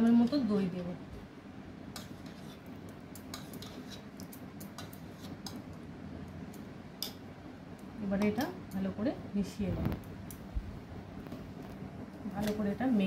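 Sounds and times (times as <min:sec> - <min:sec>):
metal spoon scraping a pot: 0:01.9 - 0:05.6.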